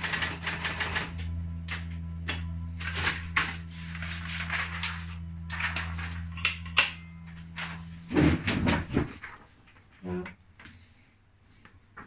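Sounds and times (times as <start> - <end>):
typewriter motor humming: 0.0 - 8.8
paper rustling: 2.8 - 6.4, 7.2 - 10.9.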